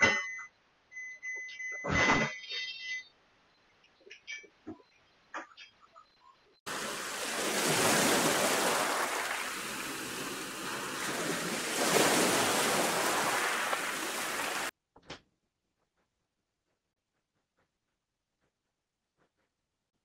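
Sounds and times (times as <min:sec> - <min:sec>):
wind: 0:00.0 - 0:14.7
sea water rushing: 0:06.7 - 0:14.7.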